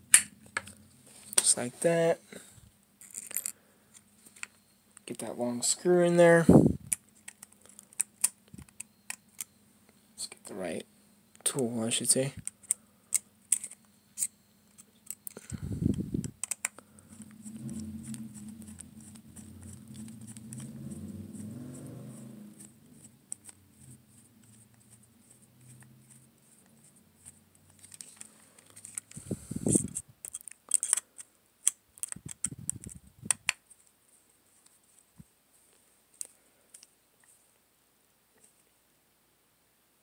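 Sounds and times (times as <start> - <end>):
small metallic clicks and scrapes: 3.0 - 5.2, 12.4 - 33.9
low hum: 15.4 - 24.2.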